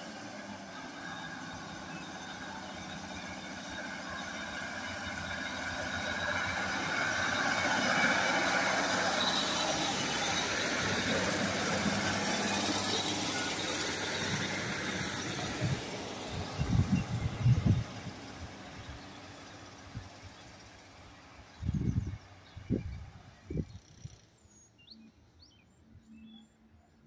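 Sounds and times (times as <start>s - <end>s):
diesel train passing: 0.0s - 27.0s
low buffeting rumbles: 14.3s - 24.1s.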